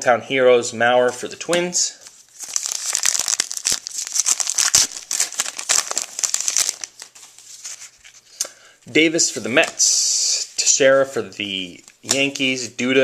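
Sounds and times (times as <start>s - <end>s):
wrapper being torn and crinkled: 2.3s - 8.2s.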